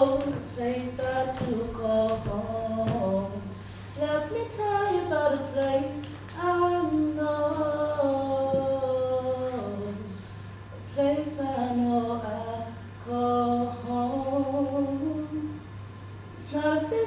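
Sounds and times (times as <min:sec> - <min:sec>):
woman singing unaccompanied: 0:00.0 - 0:15.8, 0:16.4 - 0:17.0.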